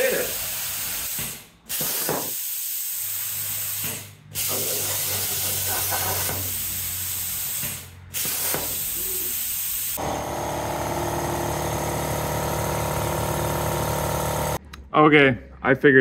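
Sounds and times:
plasma cutter air hiss: 0.0s - 10.0s.

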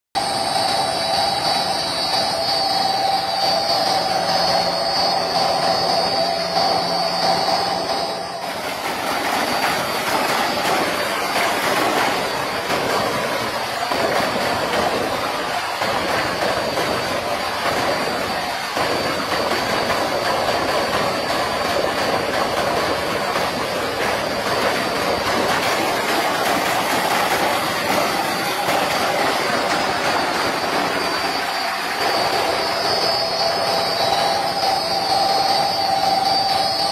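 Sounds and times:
electric pump motor whining: 0.2s - 36.9s
water gushing into a tank: 0.2s - 36.9s.

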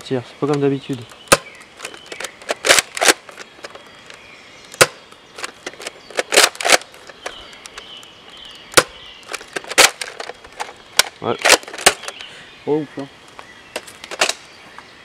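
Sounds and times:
toy blaster clacks and snaps: 1.8s - 3.8s.

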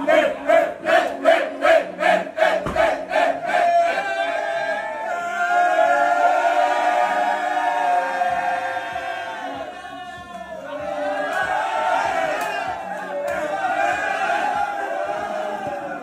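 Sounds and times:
men chanting in rhythm: 0.0s - 3.6s.

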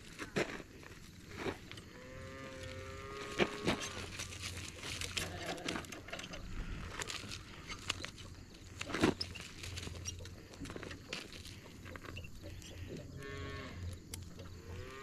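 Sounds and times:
harness clips clicking and rattling: 3.3s - 13.1s.

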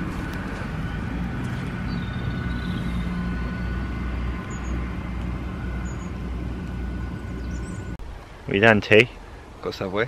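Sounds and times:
distant traffic rumble: 0.0s - 10.0s.

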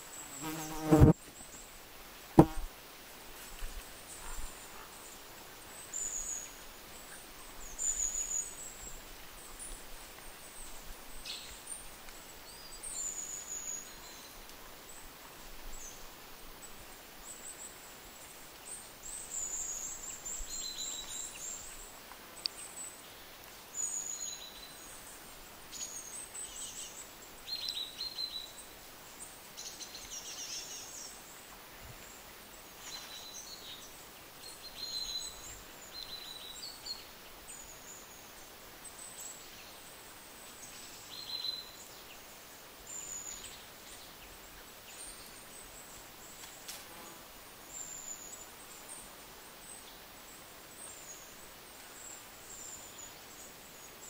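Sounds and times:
soft background hiss: 0.0s - 54.0s.

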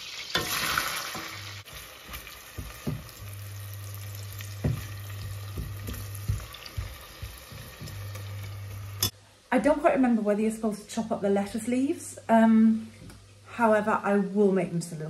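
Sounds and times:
onions sizzling in butter: 0.0s - 9.1s
utensil knocking against pot: 4.6s - 8.1s.

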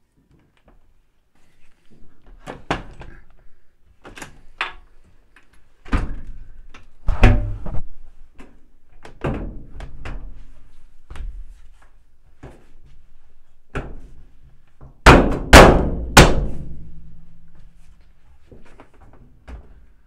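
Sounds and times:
heavy thumps: 7.0s - 8.0s.

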